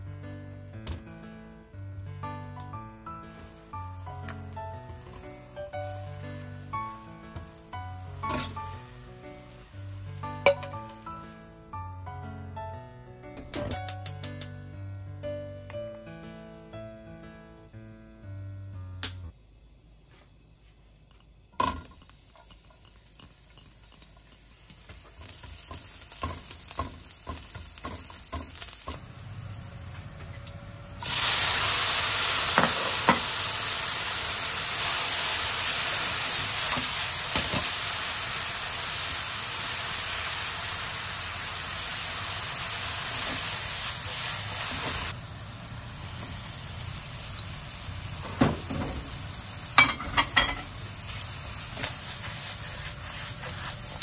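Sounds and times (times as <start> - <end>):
oil sizzling in a frying pan: 0.0 - 12.2, 21.5 - 54.0
spatula scraping and knocking pan: 21.6 - 29.0, 51.7 - 54.0
spatula tapping on pan: 25.2 - 28.6.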